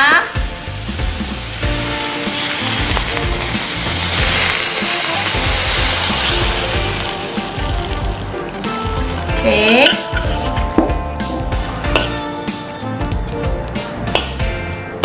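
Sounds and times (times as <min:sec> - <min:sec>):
background music: 0:00.0 - 0:15.0
water hissing in hot wok: 0:00.3 - 0:10.3.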